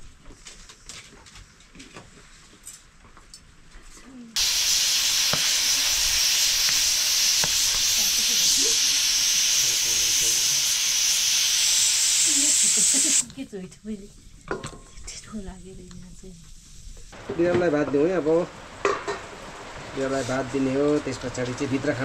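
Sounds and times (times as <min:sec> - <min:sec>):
pressure cooker venting steam: 0:04.4 - 0:13.3, 0:17.2 - 0:22.0.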